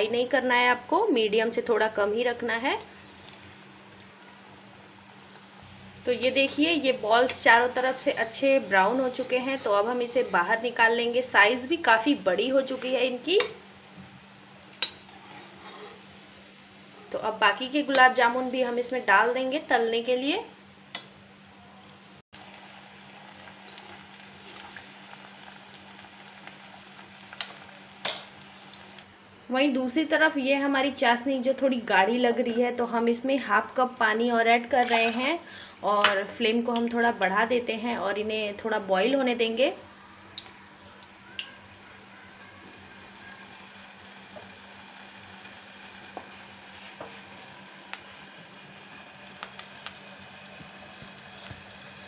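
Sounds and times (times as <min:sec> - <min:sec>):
balls frying in hot ghee: 0:00.0 - 0:21.4, 0:22.4 - 0:52.0
oil popping and crackling: 0:22.4 - 0:29.1, 0:40.3 - 0:41.7, 0:43.4 - 0:48.2, 0:48.8 - 0:52.0
deep-frying sizzle: 0:22.4 - 0:29.2, 0:38.9 - 0:52.0.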